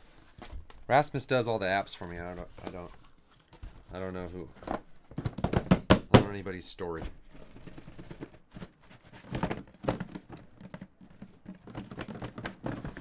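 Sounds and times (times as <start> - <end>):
cardboard flaps rustling and scraping: 0.0 - 5.6, 6.9 - 13.0
boxes knocking inside a case: 5.1 - 6.3, 7.6 - 13.0.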